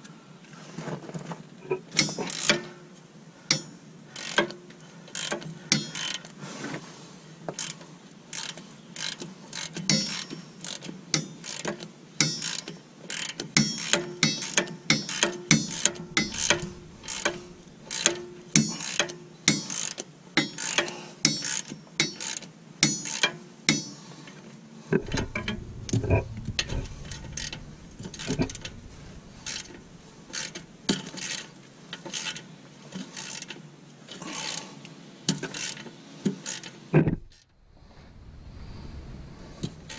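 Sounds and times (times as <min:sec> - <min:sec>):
hand ratchet clicking: 0:12.4 - 0:18.2
scattered knocks: 0:15.2 - 0:18.6, 0:25.0 - 0:31.2.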